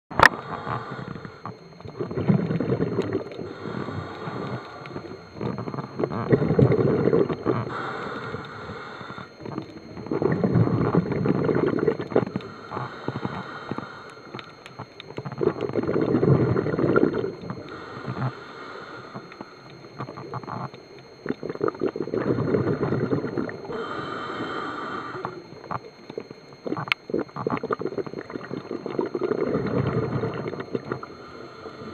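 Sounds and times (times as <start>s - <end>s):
exhaled bubbles underwater: 0.3s - 31.9s
regulator inhalation hiss: 7.7s - 9.3s, 17.6s - 19.6s, 23.7s - 25.4s.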